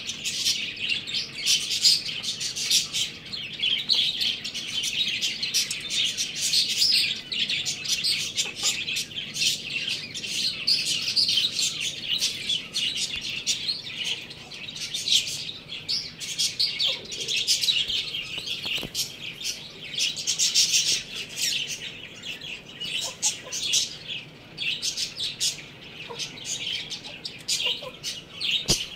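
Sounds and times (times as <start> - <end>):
small birds chirping rapidly: 0.0 - 28.9.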